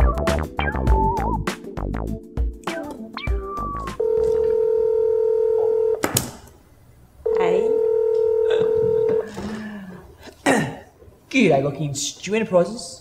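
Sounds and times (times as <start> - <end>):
phone ringing electronic tones: 3.6 - 6.0, 7.3 - 9.3.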